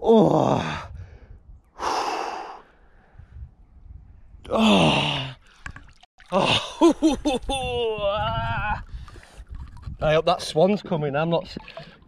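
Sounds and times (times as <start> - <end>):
man sighing: 4.4 - 5.4.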